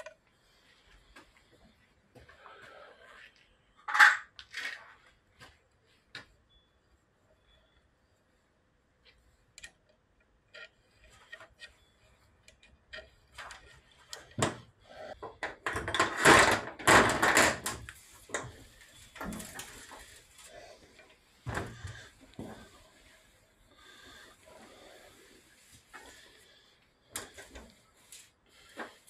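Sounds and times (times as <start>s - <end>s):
metal parts clicking and knocking: 9.5s - 20.2s.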